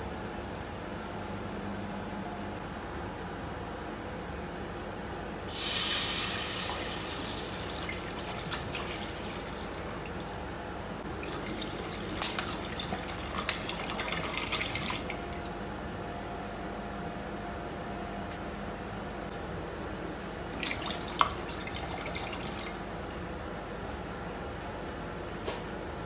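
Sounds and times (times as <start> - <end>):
water pouring into a pot: 5.5 - 10.4, 11.0 - 15.5, 20.5 - 23.2.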